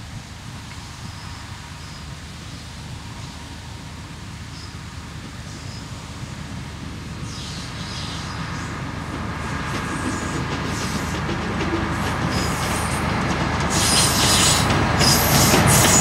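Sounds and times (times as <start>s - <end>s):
diesel locomotive engine rumble: 0.0s - 16.0s
train wheels clicking on track: 5.2s - 16.0s.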